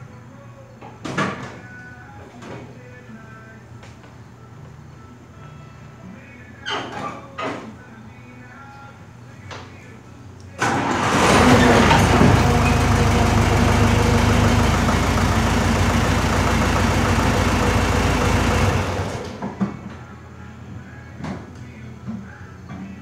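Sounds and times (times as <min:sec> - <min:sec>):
skid steer engine running: 0:10.6 - 0:19.6.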